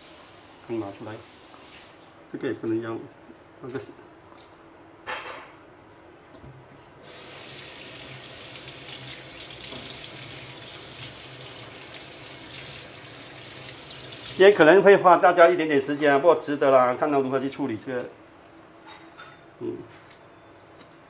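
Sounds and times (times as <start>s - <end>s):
tap running into a metal sink: 9.4s - 11.6s.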